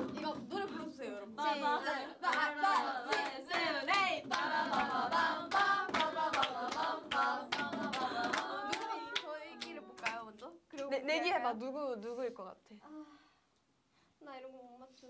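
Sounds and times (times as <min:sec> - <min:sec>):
rhythmic clapping: 0:00.0 - 0:11.1
young women singing together: 0:00.0 - 0:11.2.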